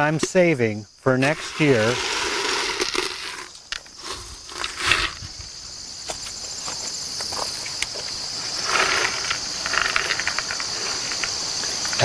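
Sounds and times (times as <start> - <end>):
insects trilling: 0.0 - 12.0
dried seeds rattling in can: 1.2 - 5.3, 8.5 - 12.0
loud rustle: 1.2 - 5.3.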